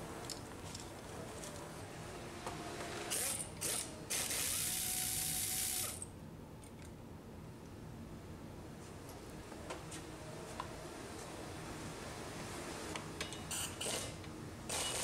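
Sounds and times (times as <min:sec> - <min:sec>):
ratchet wrench clicking: 0:03.1 - 0:06.1.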